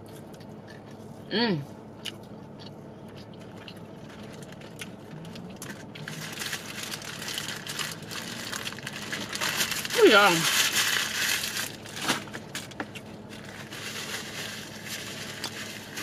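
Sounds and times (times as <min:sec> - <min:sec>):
paper crinkling: 0:04.0 - 0:16.0.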